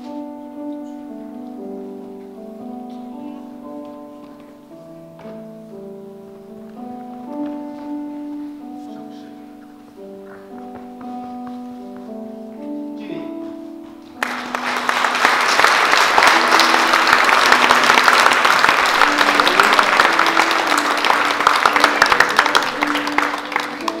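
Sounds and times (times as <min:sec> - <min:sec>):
soft instrumental music: 0:00.0 - 0:24.0
audience applause: 0:14.2 - 0:24.0.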